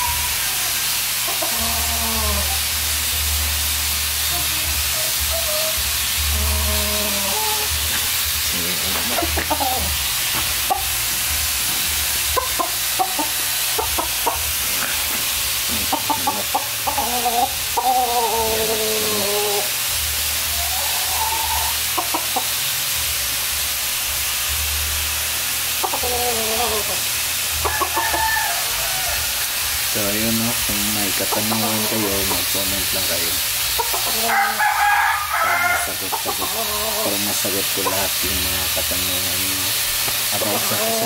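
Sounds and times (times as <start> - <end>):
rooster clucking and calling: 0.0 - 2.7, 4.9 - 22.7, 25.7 - 30.0, 33.4 - 38.1, 40.2 - 41.0
steady hiss: 0.0 - 41.0.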